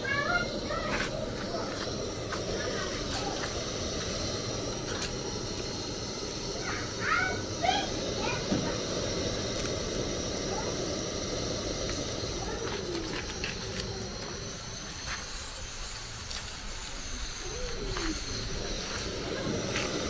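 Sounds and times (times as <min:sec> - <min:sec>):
faint distant voices: 0:00.0 - 0:20.0.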